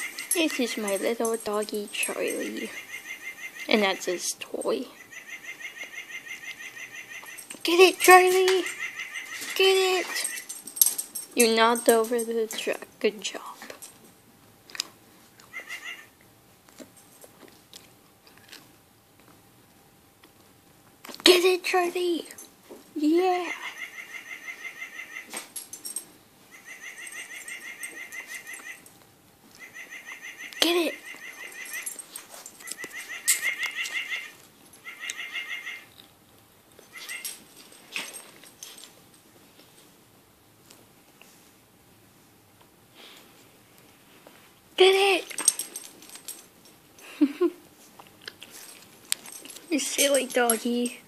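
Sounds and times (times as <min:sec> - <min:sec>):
squeaky dog toy chirping: 0:26.5 - 0:28.8, 0:29.6 - 0:32.0.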